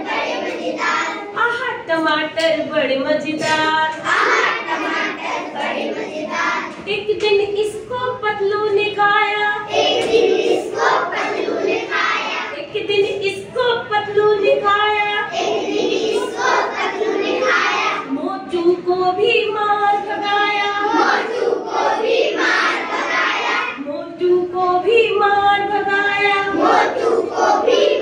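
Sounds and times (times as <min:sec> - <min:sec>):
children singing in unison: 0:00.0 - 0:01.4, 0:04.0 - 0:06.8, 0:09.6 - 0:12.6, 0:15.2 - 0:18.2, 0:19.9 - 0:23.8, 0:25.7 - 0:28.0.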